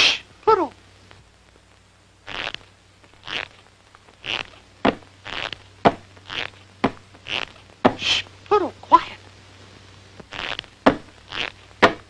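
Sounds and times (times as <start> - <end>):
cartoon hissing puffs: 0.0 - 0.3, 7.3 - 8.3.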